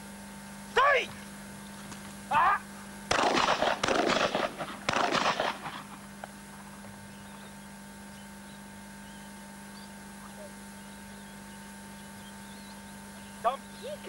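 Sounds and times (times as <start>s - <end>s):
low tape hum: 0.0s - 14.0s
shotgun shots: 3.1s - 6.0s.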